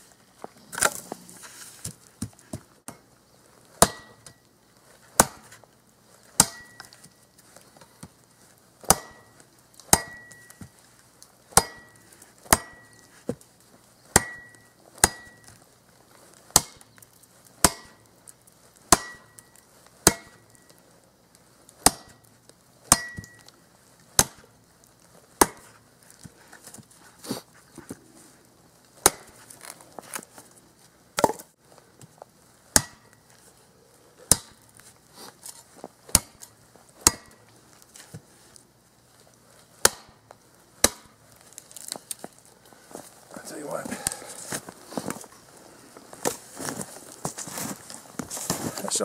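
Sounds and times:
shovel blade chopping branch: 3.8 - 4.4, 5.2 - 5.6, 6.3 - 7.1, 8.8 - 10.7, 11.5 - 13.1, 14.1 - 15.5, 16.5 - 16.9, 17.6 - 18.1, 18.9 - 19.4, 20.0 - 20.5, 21.8 - 22.2, 22.9 - 23.5, 24.2 - 24.5, 29.0 - 30.2, 32.7 - 33.2, 34.2 - 34.6, 35.2 - 37.4, 39.8 - 42.0.

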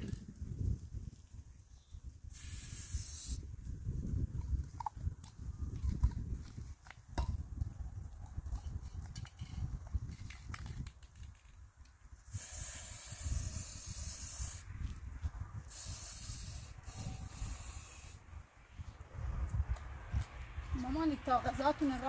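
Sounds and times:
spray paint can hissing: 2.3 - 3.5, 12.3 - 14.7, 15.7 - 18.2.

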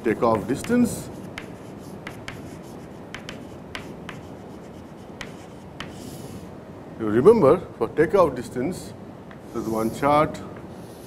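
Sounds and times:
low room noise: 0.0 - 11.0
chalk tapping and scraping: 0.1 - 6.3.

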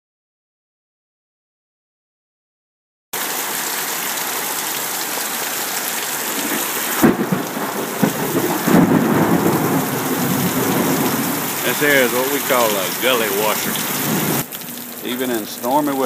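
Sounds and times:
heavy rain pouring: 3.2 - 16.0.

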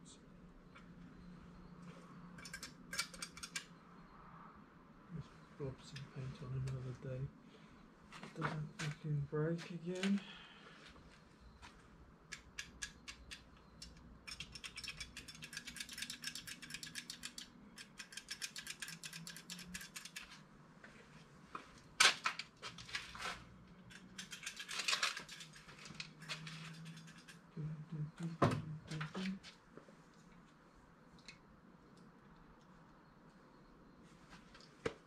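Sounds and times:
small sharp clicks of car parts: 2.4 - 3.7.

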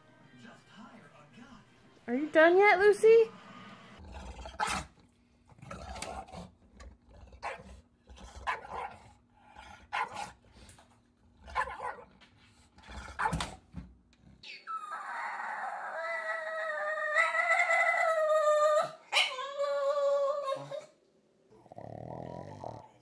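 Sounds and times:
dog barking: 7.4 - 7.7, 8.4 - 9.0, 9.9 - 10.4, 11.5 - 12.1, 13.2 - 13.6
dog howling: 14.6 - 20.9.

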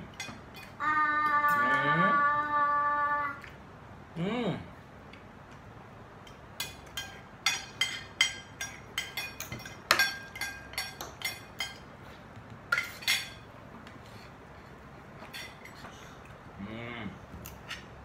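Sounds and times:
cutlery clinking on plates: 6.3 - 11.9, 12.7 - 13.5.

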